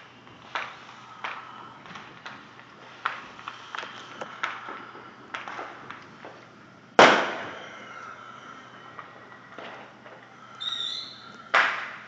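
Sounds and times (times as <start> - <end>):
fireworks pops and cracks: 0.0 - 12.0
loud firework bang: 7.0 - 8.0.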